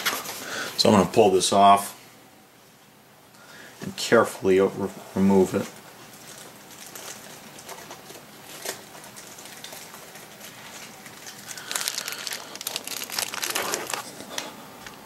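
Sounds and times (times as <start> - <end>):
plastic bag crinkling: 6.1 - 14.5.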